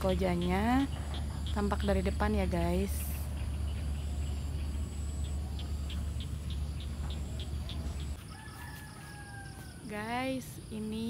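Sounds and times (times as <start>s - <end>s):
faint insect chirping: 0.0s - 11.0s.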